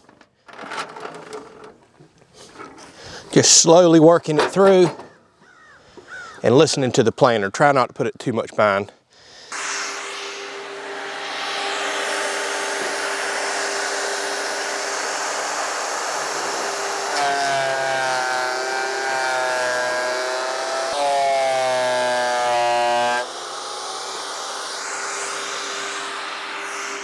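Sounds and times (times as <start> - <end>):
pitched hum: 9.5 - 27.0
thickness planer cutting a board: 9.5 - 27.0.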